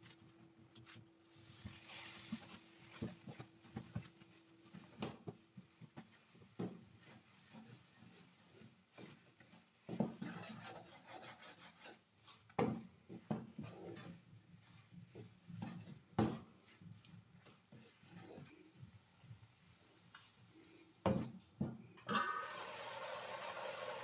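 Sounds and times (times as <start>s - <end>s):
wooden spoon scraping a pan: 0.8s - 21.4s.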